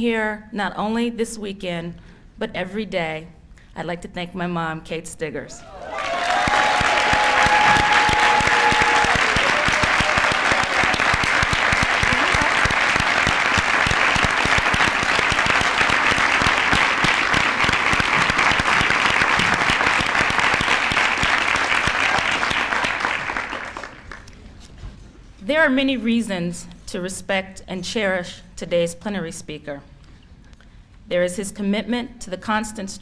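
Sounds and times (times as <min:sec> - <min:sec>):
large audience applauding: 0:05.7 - 0:24.4.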